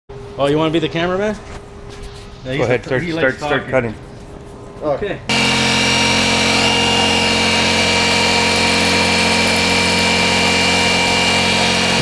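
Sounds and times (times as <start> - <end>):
jigsaw cutting plastic: 5.3 - 12.0.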